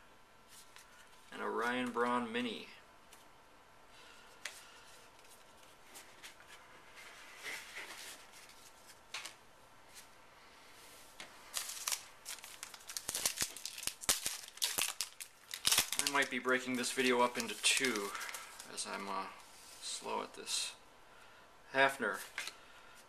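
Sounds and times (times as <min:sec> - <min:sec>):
wrapper crinkling and crackling: 0:11.5 - 0:19.1.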